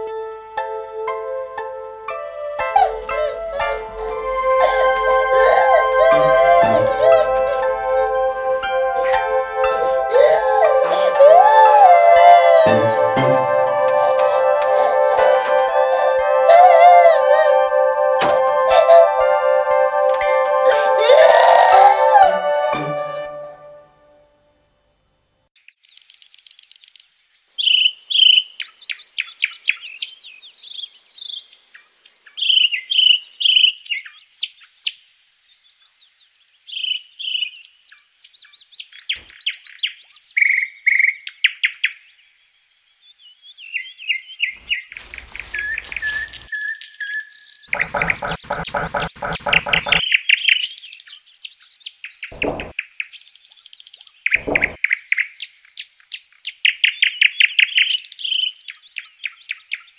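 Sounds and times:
songbirds chirping and trilling: 25.6s - 59.9s
rustling noise: 44.6s - 46.5s
short thumps: 52.4s - 52.7s, 54.4s - 54.8s.

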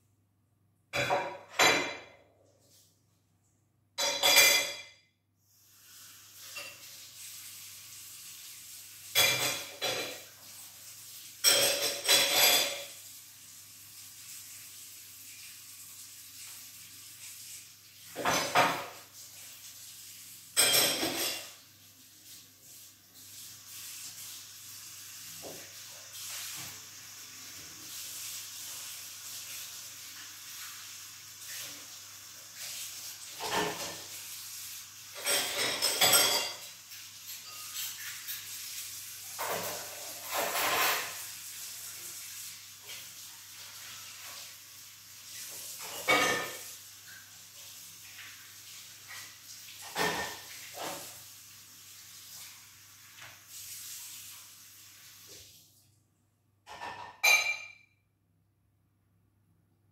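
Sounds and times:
dishes clattering: 0.9s - 2.2s, 4.0s - 5.0s, 9.1s - 10.3s, 11.4s - 13.0s, 18.1s - 19.0s, 20.6s - 21.6s, 33.4s - 34.1s, 35.1s - 36.7s, 39.4s - 41.2s, 45.8s - 46.7s, 49.1s - 51.1s, 56.7s - 57.9s
running water: 5.6s - 55.8s.

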